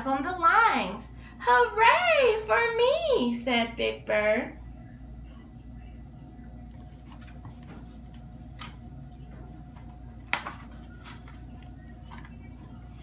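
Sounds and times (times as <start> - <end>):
low room hum: 0.0 - 13.0
pages rustling: 6.7 - 12.8
paper snap: 10.3 - 10.7.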